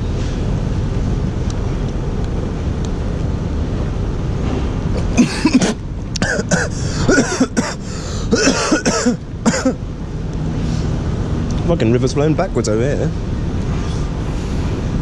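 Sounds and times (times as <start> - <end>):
low background rumble: 0.0 - 15.0
man coughing and clearing throat: 5.0 - 9.8.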